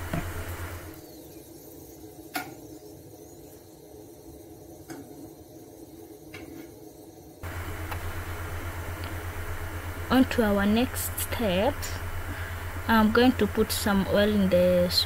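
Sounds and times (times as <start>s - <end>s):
low steady hum: 0.0s - 2.2s, 7.4s - 15.0s.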